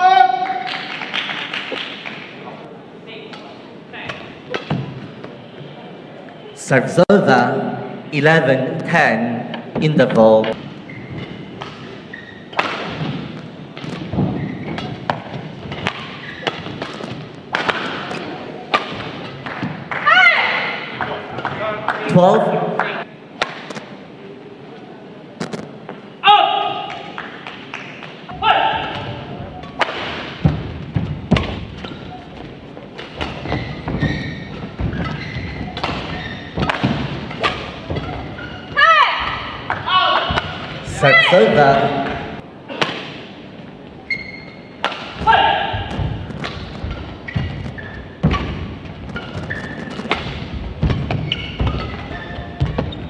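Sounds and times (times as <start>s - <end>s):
hall background noise: 0.0s - 53.0s
rackets hitting shuttlecock: 12.5s - 20.0s, 23.3s - 24.0s, 28.7s - 32.1s, 32.9s - 38.6s, 44.8s - 53.0s
thudding footfalls on court: 45.2s - 53.0s.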